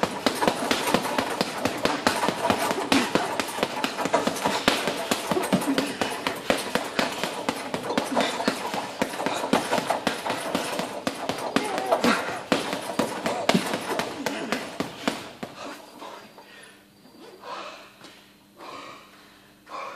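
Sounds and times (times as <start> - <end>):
gloves punching heavy bag: 0.0 - 15.9.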